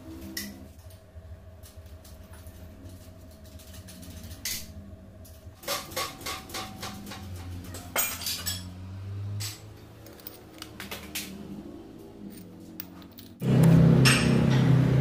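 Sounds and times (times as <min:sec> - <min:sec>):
steady low hum: 0:00.0 - 0:15.0
metal clinks and taps: 0:09.5 - 0:10.8.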